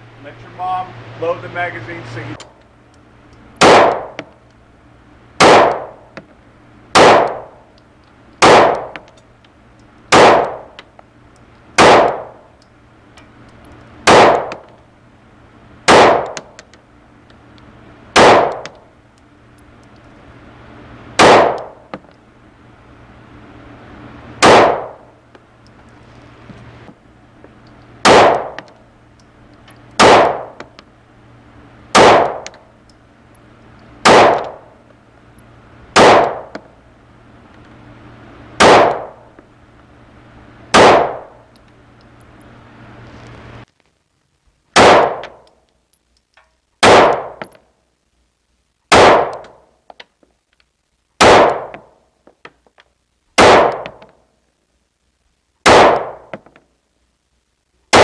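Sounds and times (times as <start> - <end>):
pistol shots echoing indoors: 3.6 - 4.2, 5.4 - 6.0, 7.0 - 7.5, 8.4 - 8.9, 28.0 - 28.6, 30.0 - 30.6, 32.0 - 32.4, 34.0 - 34.6, 38.6 - 39.2, 40.8 - 41.2, 44.8 - 45.2, 46.8 - 47.4, 48.9 - 49.4, 51.2 - 51.8, 55.7 - 56.3.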